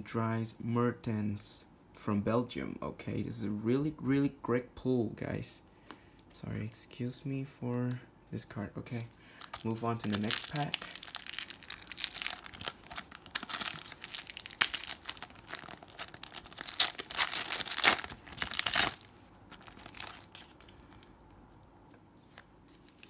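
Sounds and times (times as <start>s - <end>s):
foil wrapper crinkling and tearing: 9.4s - 21.1s.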